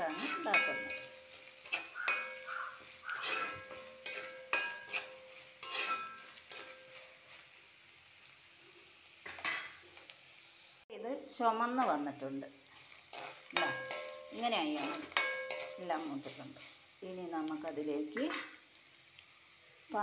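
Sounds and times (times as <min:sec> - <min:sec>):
spoon clinking on pot: 0:00.0 - 0:07.0, 0:13.6 - 0:15.8
spoon scraping metal pot: 0:00.0 - 0:07.1, 0:13.0 - 0:16.8
light sizzling in oil: 0:00.0 - 0:20.0.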